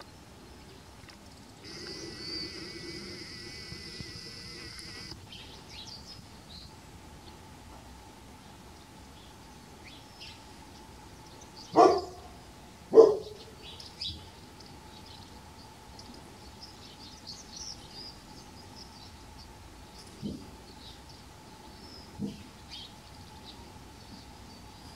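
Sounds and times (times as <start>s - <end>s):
small birds chirping: 0.0s - 7.4s, 13.0s - 24.9s
animal barking: 11.8s - 12.3s, 12.9s - 13.4s.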